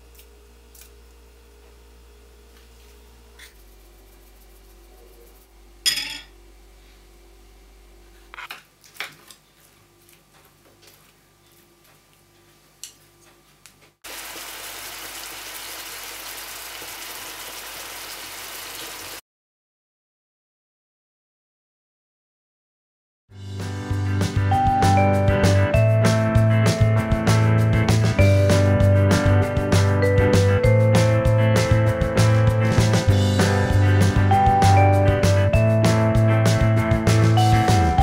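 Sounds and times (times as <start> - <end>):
utensils clinking on dishes: 5.9 - 6.3
meat sizzling in a frying pan: 14.1 - 19.2.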